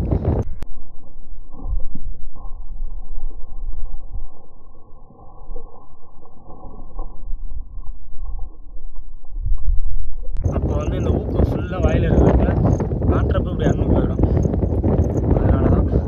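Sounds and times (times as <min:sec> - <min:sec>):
wind buffeting microphone: 0:00.0 - 0:00.6, 0:10.3 - 0:16.0.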